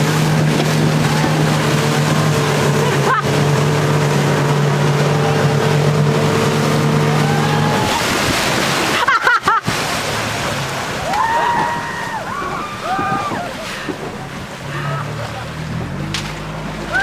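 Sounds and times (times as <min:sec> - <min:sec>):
rushing wind and spray: 0:00.0 - 0:14.6
motorboat engine running: 0:00.0 - 0:17.0
people shouting: 0:07.1 - 0:08.1, 0:11.0 - 0:13.6.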